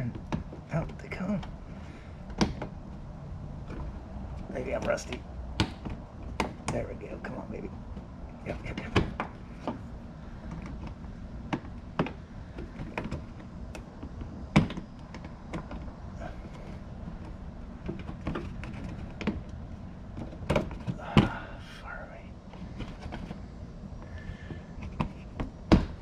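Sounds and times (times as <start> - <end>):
plastic clicks and knocks: 10.4 - 21.3.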